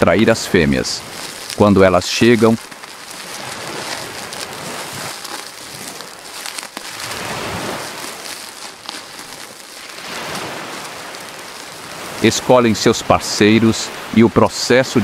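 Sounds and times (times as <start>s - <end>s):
surf washing up beach: 0.0s - 15.0s.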